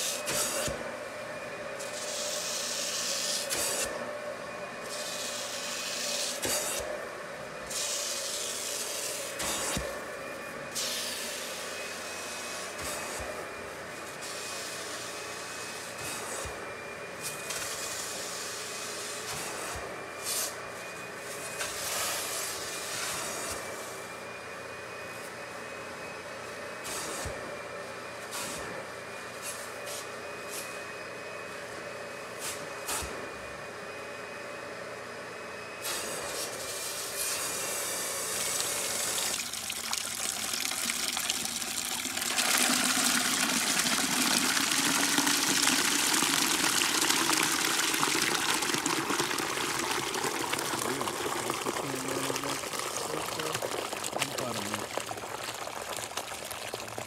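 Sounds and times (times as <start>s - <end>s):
vacuum whine: 0.0s - 39.6s, 40.3s - 55.3s
water pouring into plastic bucket: 38.4s - 57.0s.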